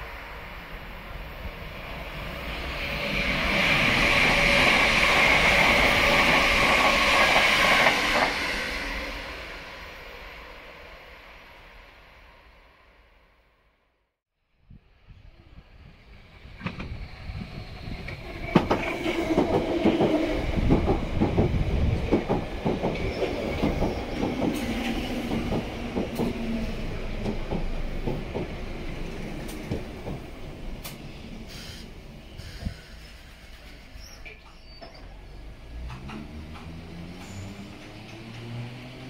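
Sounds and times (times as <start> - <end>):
train whine: 0.0 - 13.2, 15.1 - 39.0
train braking: 16.6 - 39.0
train wheels clattering over rail joints: 18.1 - 26.4, 35.7 - 38.7.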